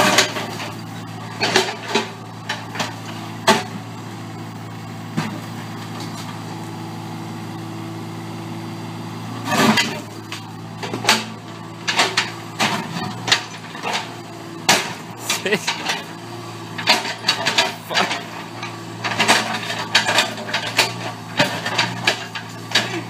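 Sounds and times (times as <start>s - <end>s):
excavator diesel engine running: 0.0s - 23.0s
metallic clanks and knocks: 10.8s - 14.1s, 16.8s - 23.0s.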